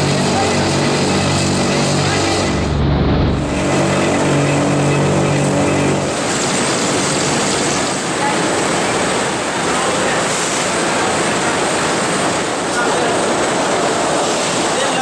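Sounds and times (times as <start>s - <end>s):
spinning mill machinery running: 0.0s - 15.0s.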